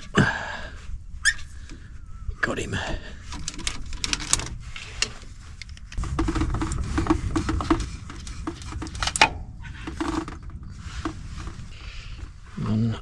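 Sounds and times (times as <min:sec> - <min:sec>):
hand tools clicking and knocking on metal: 0:03.3 - 0:11.7
low rumble: 0:04.5 - 0:13.0.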